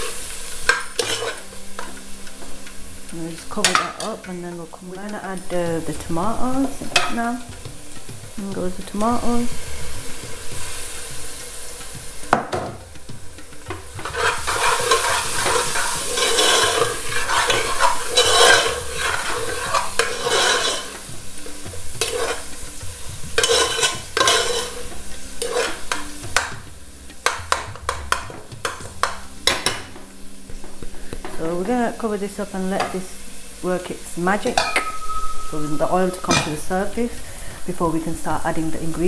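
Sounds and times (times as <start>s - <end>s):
metal spoon scraping a pot: 0.0s - 2.0s, 13.5s - 26.5s
food sizzling in a pot: 0.0s - 39.0s
spoon clinking against pot: 0.5s - 2.0s, 13.7s - 21.1s, 22.0s - 22.6s, 23.3s - 26.6s, 34.6s - 36.7s.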